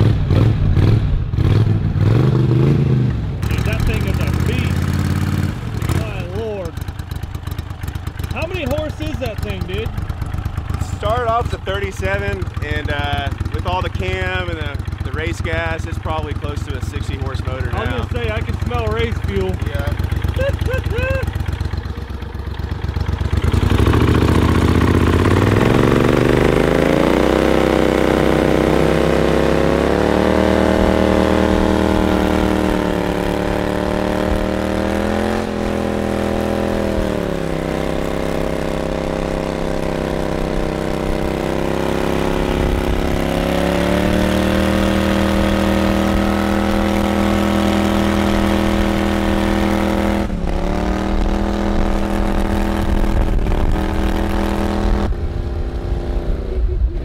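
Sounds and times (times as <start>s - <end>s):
boat motor revving: 0.0s - 57.0s.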